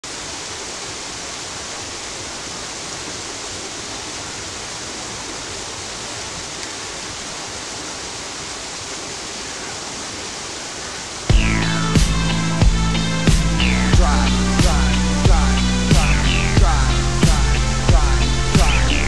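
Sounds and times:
steady rushing hiss: 0.1s - 19.0s.

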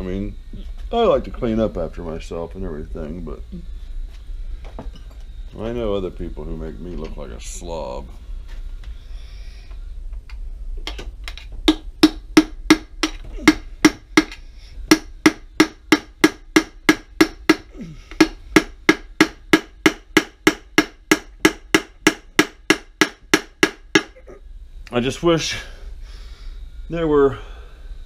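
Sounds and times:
hammer striking punch on metal: 11.6s - 24.2s.

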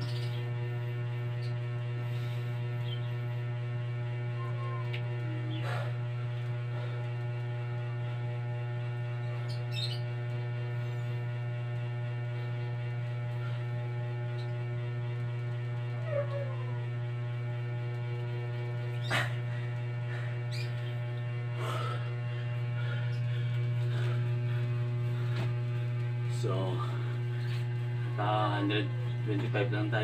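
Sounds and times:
low electrical mains hum: 0.0s - 30.0s.

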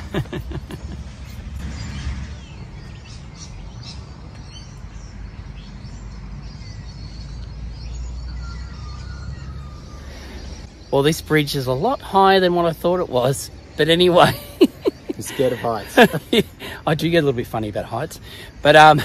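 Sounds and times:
low rumble: 0.0s - 4.3s
birds chirping and calling: 0.0s - 19.0s.

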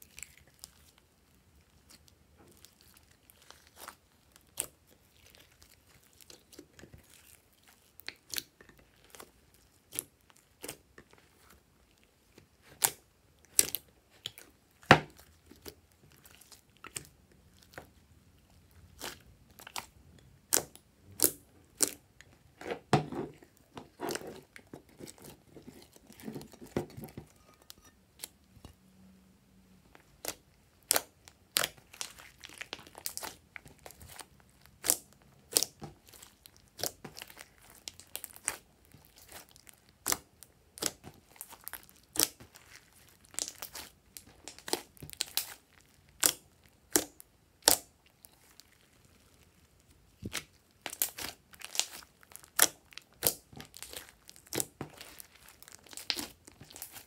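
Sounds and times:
slime popping and crackling: 18.8s - 22.1s, 30.1s - 57.0s.

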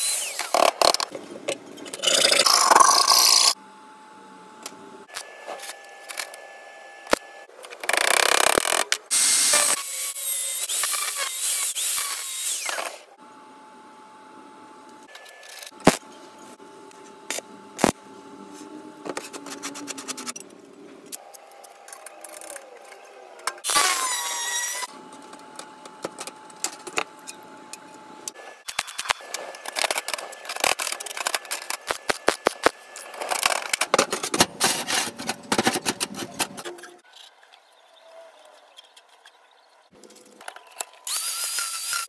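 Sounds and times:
stick welding crackle: 28.6s - 33.8s.

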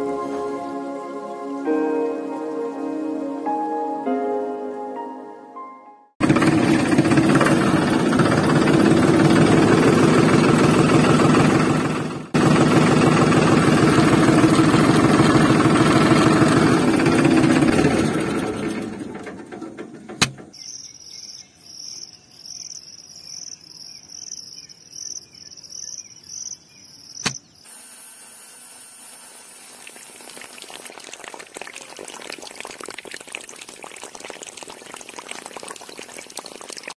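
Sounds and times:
tractor engine chugging: 6.2s - 20.6s
sharp click: 27.2s - 27.5s
water running over soil: 29.0s - 36.9s.

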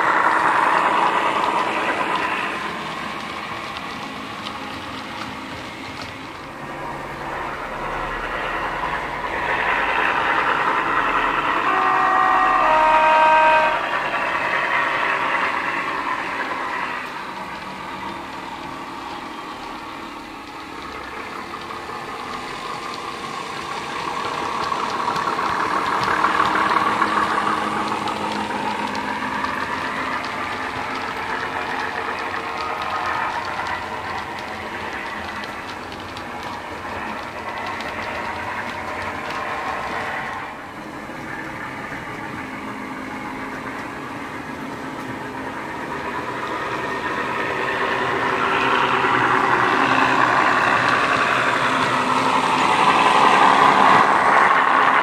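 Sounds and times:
diesel locomotive engine: 0.0s - 55.0s
two-note locomotive horn: 10.4s - 15.0s.

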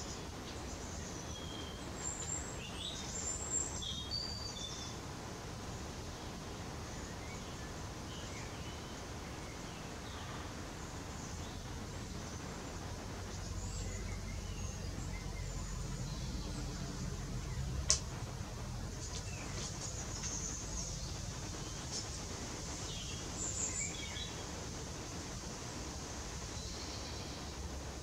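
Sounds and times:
small birds chirping: 0.0s - 28.0s
low steady rumble: 10.2s - 28.0s
sharp click: 17.9s - 18.1s.

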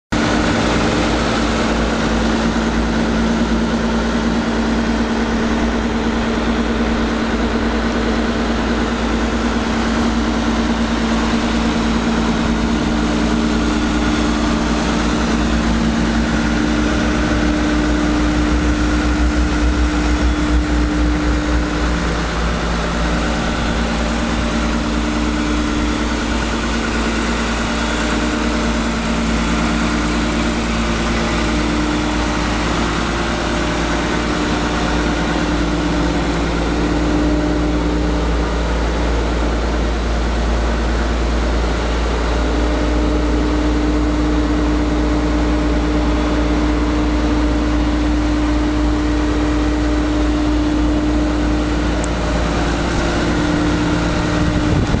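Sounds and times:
diesel engine idling: 0.1s - 55.0s.

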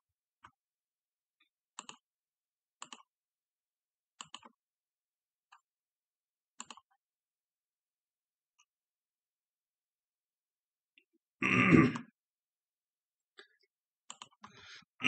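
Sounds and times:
computer mouse clicking: 1.8s - 2.0s, 2.8s - 3.1s, 4.2s - 4.6s, 6.6s - 7.0s, 14.1s - 14.6s.

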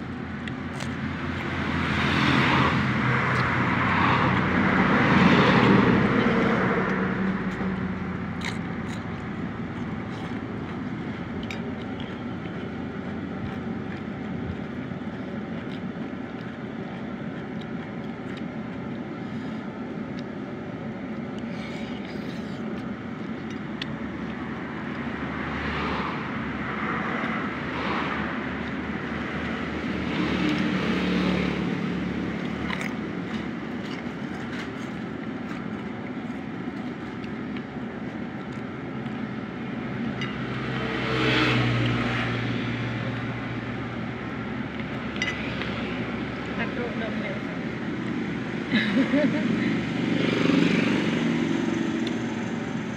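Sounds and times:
vehicle passing: 0.0s - 17.0s, 24.1s - 52.9s
road traffic hum: 0.0s - 52.9s.

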